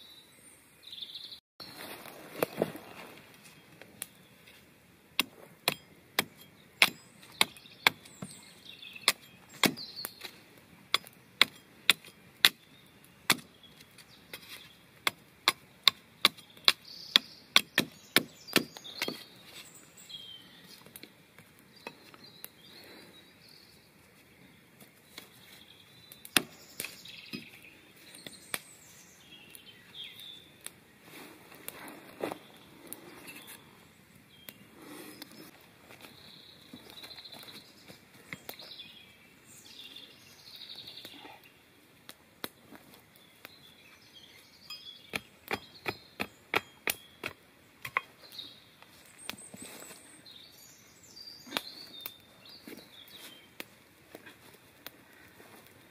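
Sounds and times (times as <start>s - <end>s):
axe chopping into a log: 9.0s - 10.3s, 13.3s - 13.5s, 15.0s - 19.2s, 45.1s - 48.1s.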